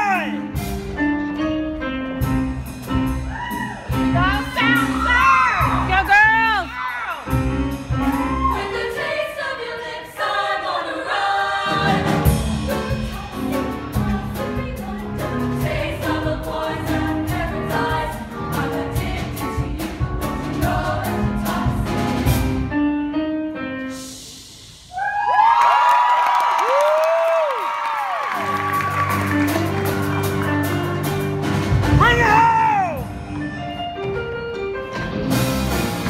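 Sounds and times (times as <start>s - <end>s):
choir singing in harmony: 7.8s - 22.7s.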